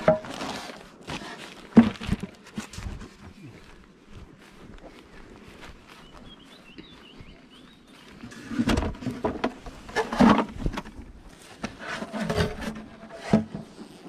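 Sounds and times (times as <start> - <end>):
wooden boxes knocking and scraping: 0.0 - 3.4, 8.3 - 13.8.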